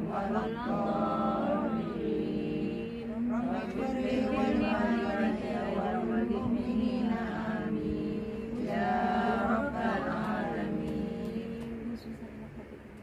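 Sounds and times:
women chanting in unison: 0.0 - 12.4.

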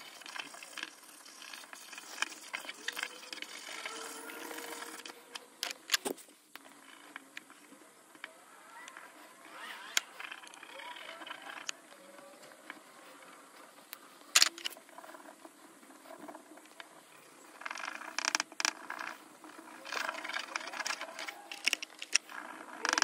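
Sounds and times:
marker tip scratching: 0.0 - 5.2.

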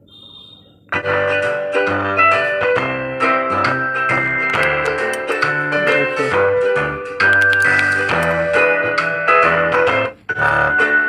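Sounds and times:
melody through a loudspeaker: 4.0 - 6.2.

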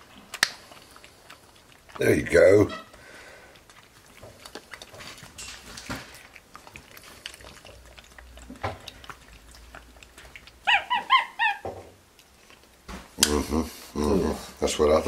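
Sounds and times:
monkey drinking from a bottle: 0.0 - 11.5
monkey chirping squeaks: 10.7 - 11.6.

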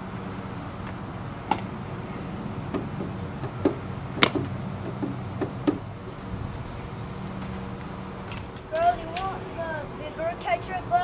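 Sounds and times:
steady low hum: 0.0 - 11.0
baseballs smacking into glove: 3.5 - 5.8.

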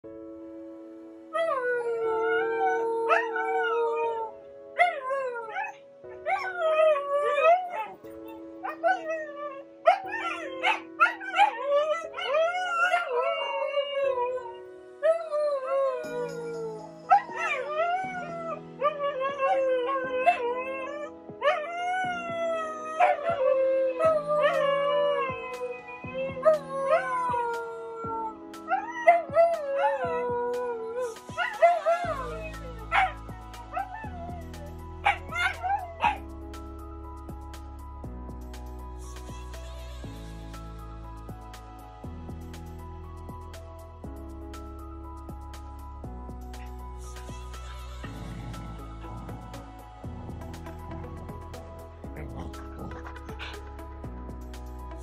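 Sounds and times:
background music with chords: 0.0 - 55.0
dogs howling and yipping: 1.4 - 36.3.

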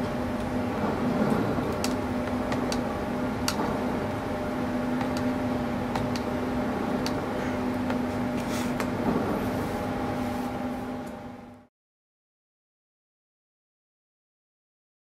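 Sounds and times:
steady low hum: 0.0 - 11.7
cable clicks and taps: 5.0 - 5.3, 5.9 - 6.3.

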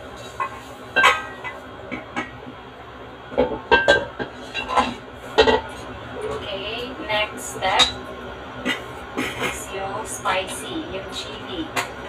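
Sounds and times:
metal wok clanking: 0.2 - 2.4, 3.4 - 5.8.

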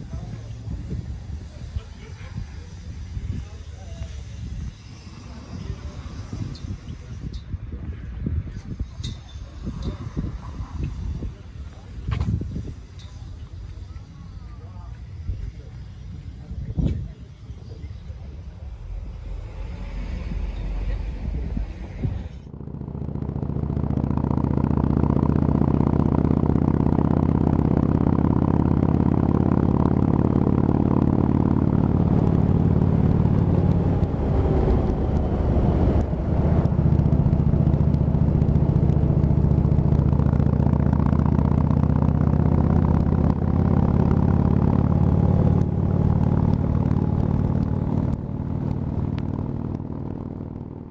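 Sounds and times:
motorcycle engine running: 0.0 - 7.0, 18.0 - 50.9.

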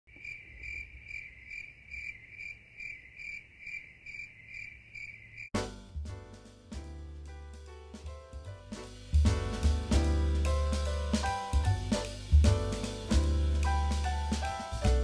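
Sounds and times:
cricket chirping: 0.1 - 5.5
music with drum kit: 5.6 - 15.0.

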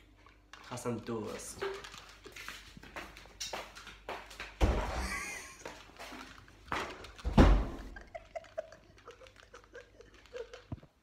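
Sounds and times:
muffled stifled laughter: 7.8 - 10.8.

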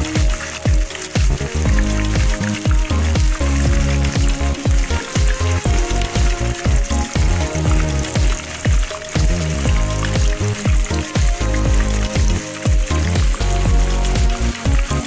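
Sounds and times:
background music with deep bass beat: 0.0 - 15.0
chicken frying in hot oil: 0.0 - 15.0.

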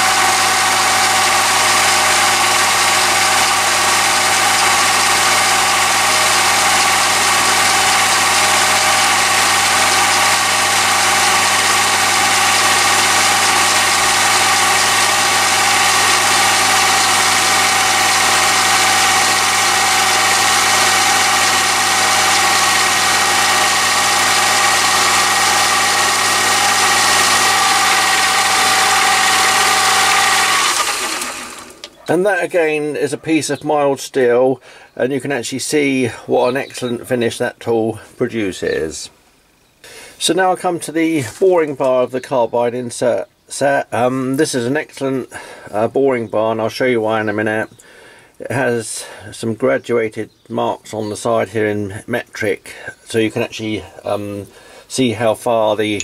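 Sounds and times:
lathe motor and gear whine: 0.0 - 31.9.

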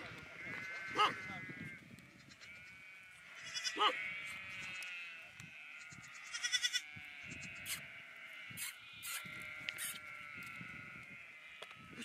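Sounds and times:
sheep bleating: 0.0 - 12.0.

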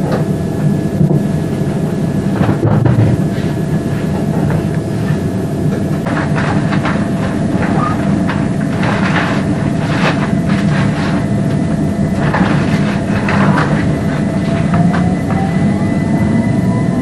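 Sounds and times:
electric train rumble: 0.0 - 17.0
steady thin whine: 0.0 - 17.0
rising whine: 10.3 - 17.0.

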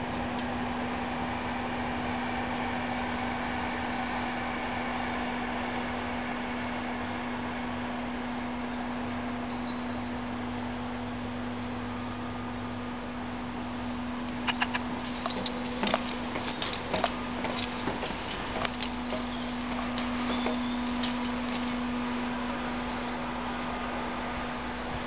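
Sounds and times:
steady low hum: 0.0 - 25.0
footsteps on steel walkway: 14.2 - 23.2.

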